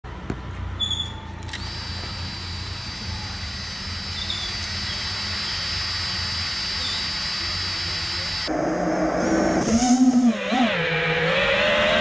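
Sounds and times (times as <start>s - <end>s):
quadcopter motors whining: 0.8s - 8.5s.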